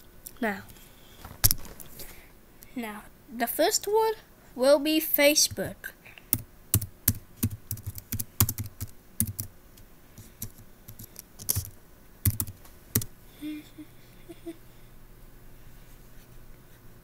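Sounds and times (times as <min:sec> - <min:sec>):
computer keyboard typing: 0:06.3 - 0:09.5, 0:10.2 - 0:13.1.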